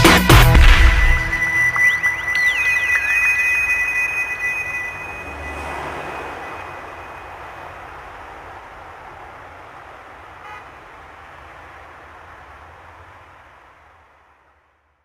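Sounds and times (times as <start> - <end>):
steady rushing noise: 0.6 - 14.7
brief higher tone: 0.8 - 7.4.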